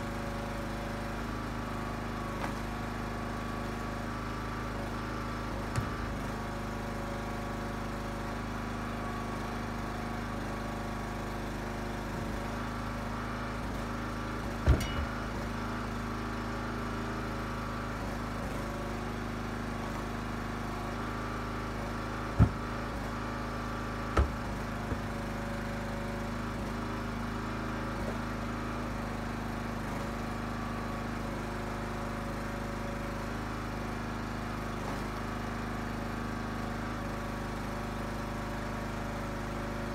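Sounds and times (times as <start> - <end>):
log splitter engine running: 0.0 - 39.9
firewood thudding into truck bed: 5.6 - 6.2, 14.6 - 15.4, 22.3 - 23.1, 24.0 - 25.4.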